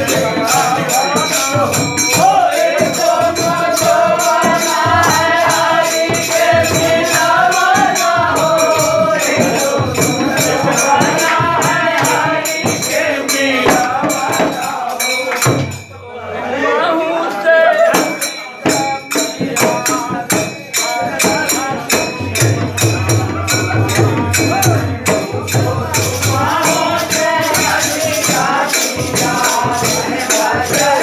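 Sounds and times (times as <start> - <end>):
barrel drum beating: 0.0 - 14.8
metallic jingling percussion: 0.0 - 16.2, 17.2 - 31.0
men singing folk song: 0.0 - 31.0.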